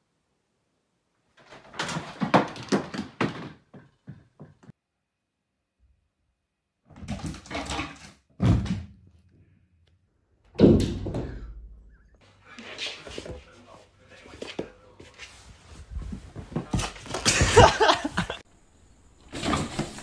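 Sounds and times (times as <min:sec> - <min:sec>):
knocks and clatter: 0:01.4 - 0:04.7.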